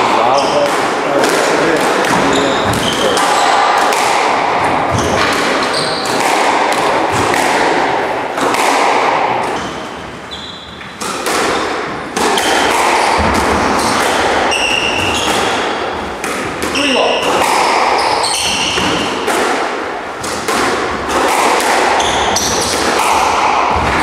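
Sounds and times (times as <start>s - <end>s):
squash ball cracking off racquets: 0.0s - 24.0s
shoes squeaking on wooden floor: 2.1s - 3.6s, 4.7s - 6.3s, 9.4s - 11.0s, 12.4s - 19.1s, 22.0s - 22.8s
ball thudding against walls: 10.8s - 24.0s.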